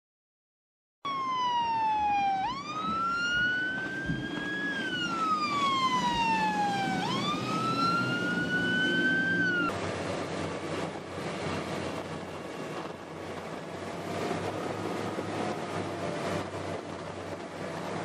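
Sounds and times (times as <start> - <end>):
electronic siren wailing: 1.1 - 9.7.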